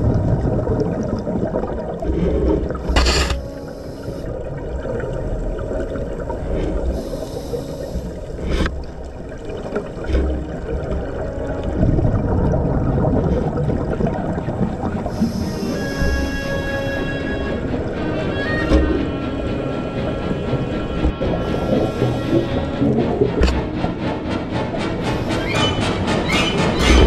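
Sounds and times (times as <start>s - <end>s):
exhaled air bubbling underwater: 0.0s - 23.4s
steady underwater wash: 0.0s - 27.0s.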